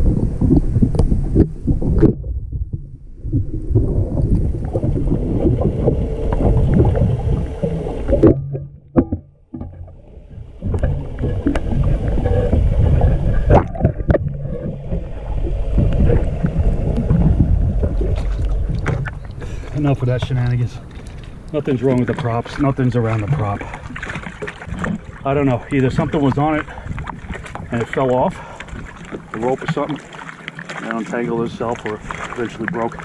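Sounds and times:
muffled underwater rushing current: 0.0s - 33.0s
knocks and clicks against camera: 8.2s - 10.0s.

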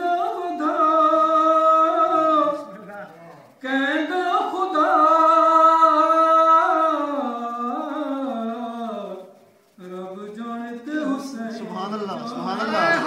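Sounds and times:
man chanting: 9.9s - 13.0s.

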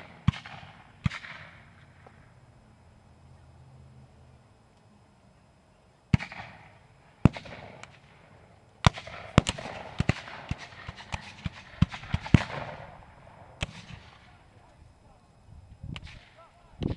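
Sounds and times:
musket shots with echo: 0.0s - 1.7s, 6.1s - 8.2s, 8.8s - 13.0s, 13.6s - 14.3s.

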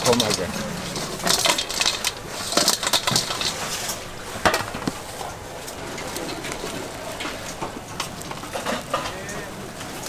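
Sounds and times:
cooking utensils clattering: 0.0s - 4.9s.

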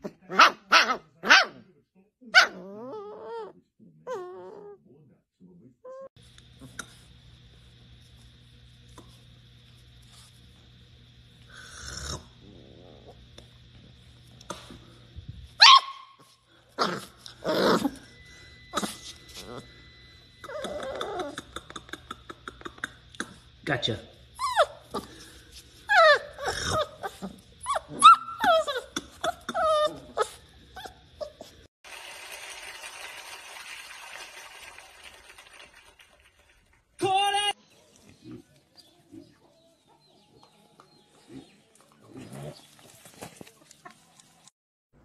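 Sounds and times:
puppy barking: 0.2s - 1.6s, 2.3s - 2.8s, 15.6s - 16.2s
puppy howling: 2.4s - 4.8s, 20.4s - 21.5s, 25.9s - 31.5s.

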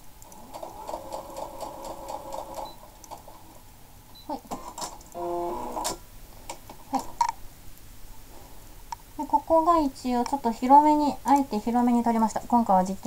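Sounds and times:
sewing machine whirring: 0.2s - 3.4s, 4.5s - 6.0s.

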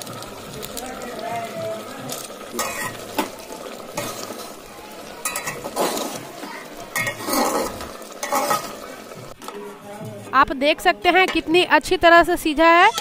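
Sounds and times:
metal spoon scraping a pot: 2.6s - 3.3s, 5.2s - 8.9s.

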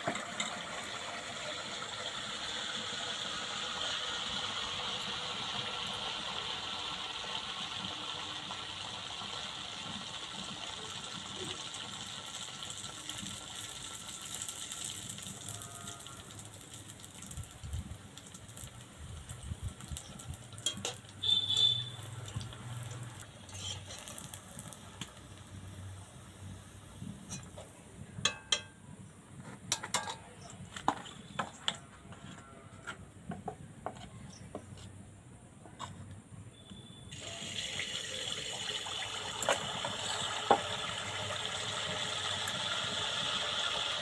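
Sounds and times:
fritter sizzling in hot oil: 0.0s - 28.7s, 36.6s - 44.0s
spoon clinking against pan: 28.2s - 28.8s.

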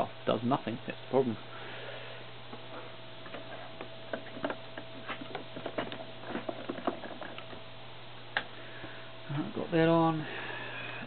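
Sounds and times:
steady low hum: 0.0s - 11.0s
small ticks and knocks from handling: 3.2s - 7.6s.

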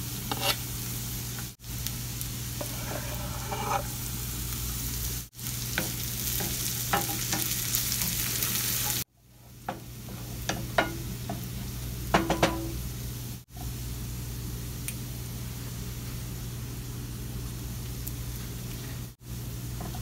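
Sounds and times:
food sizzling in oil: 0.0s - 16.0s
spoon clinking and scraping pan: 5.8s - 8.1s.

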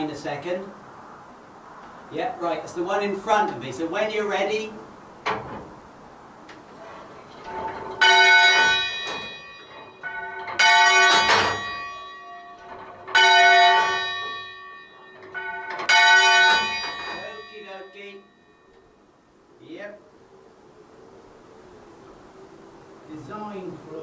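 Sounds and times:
church bell ringing: 7.5s - 19.0s.

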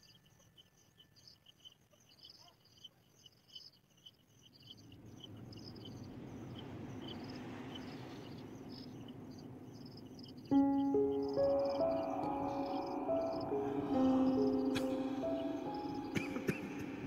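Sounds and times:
insects chirping: 0.0s - 17.0s
rushing noise: 4.9s - 17.0s.

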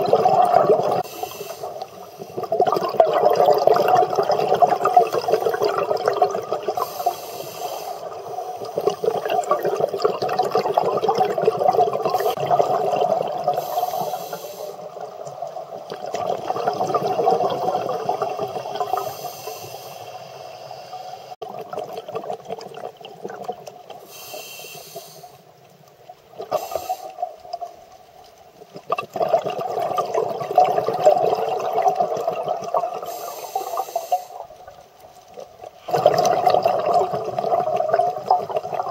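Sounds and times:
exhaled air bubbling: 0.0s - 19.7s, 21.2s - 25.3s, 28.6s - 38.9s
regulator inhalation hiss: 1.0s - 2.4s, 6.8s - 9.2s, 13.6s - 15.0s, 18.9s - 21.4s, 24.0s - 25.5s, 26.5s - 27.3s, 33.0s - 34.5s.

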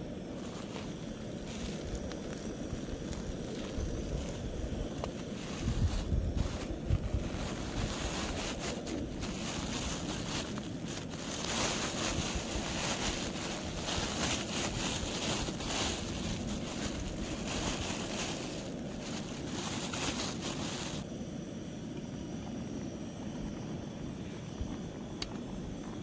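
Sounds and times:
wind rushing over microphone: 1.3s - 21.0s.

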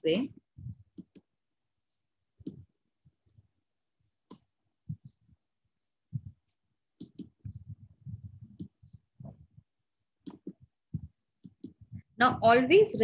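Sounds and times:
soft low thumps: 0.3s - 1.2s, 2.4s - 3.5s, 4.3s - 12.5s.

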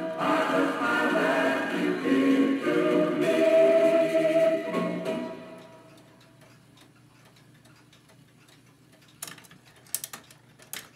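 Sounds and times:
singing on old record: 0.0s - 6.1s.

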